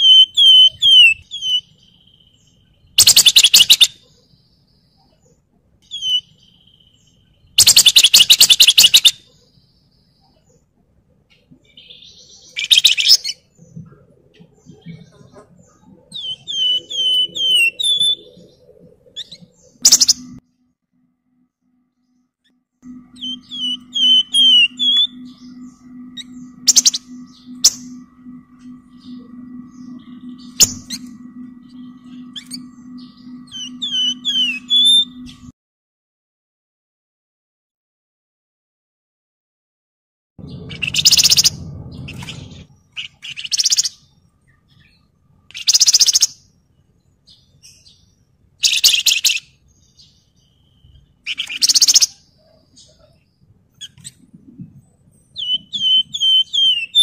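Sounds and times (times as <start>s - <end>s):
songbird whistling: 0.0s - 2.3s, 3.0s - 4.0s, 5.9s - 7.0s, 7.6s - 9.2s, 11.7s - 13.5s, 16.0s - 20.4s, 22.8s - 35.5s, 40.4s - 44.0s, 50.4s - 52.2s, 55.3s - 57.0s
steady low hum: 13.4s - 35.6s, 40.4s - 45.6s
low rumble: 22.8s - 35.5s, 40.4s - 43.0s.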